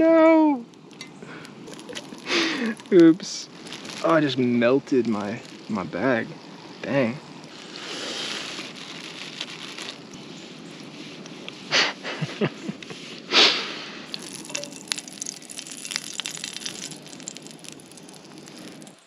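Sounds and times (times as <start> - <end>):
camp stove burner hissing: 0.0 - 19.0
egg sizzling in butter: 0.8 - 5.8, 14.1 - 19.0.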